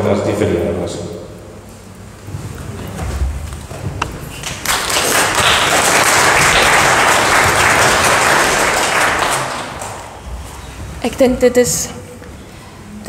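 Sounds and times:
congregation applauding: 4.3s - 10.4s.

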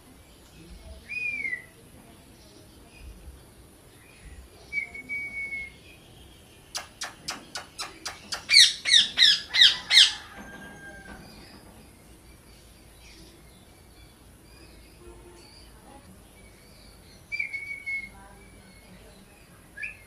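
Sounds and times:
parrot clicking: 6.7s - 8.9s
parrot squawking harshly: 8.4s - 10.2s.

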